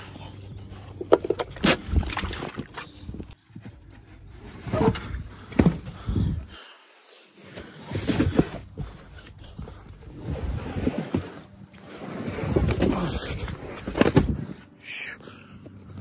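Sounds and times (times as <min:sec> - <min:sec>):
dull thuds: 0:03.5 - 0:06.4.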